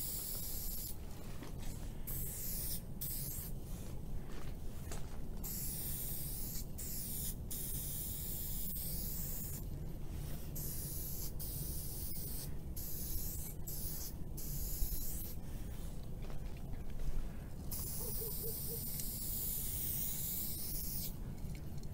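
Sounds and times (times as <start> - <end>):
spray paint can hissing: 0.0 - 1.0, 2.1 - 3.5, 5.4 - 9.6, 10.6 - 15.4, 17.7 - 21.2.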